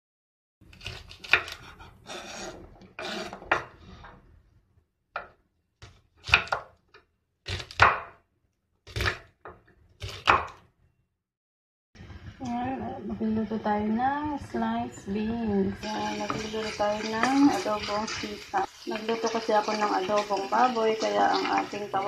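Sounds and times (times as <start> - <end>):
knife chopping on wooden board: 5.2 - 6.8, 7.4 - 8.2, 8.9 - 10.6.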